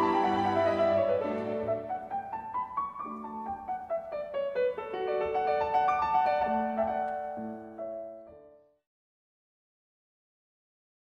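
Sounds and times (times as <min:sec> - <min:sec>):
piano music: 0:00.0 - 0:08.8.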